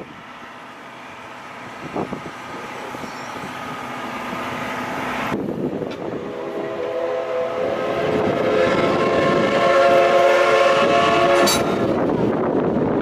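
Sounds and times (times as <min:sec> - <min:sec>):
steam locomotive whistle: 0:05.9 - 0:12.1.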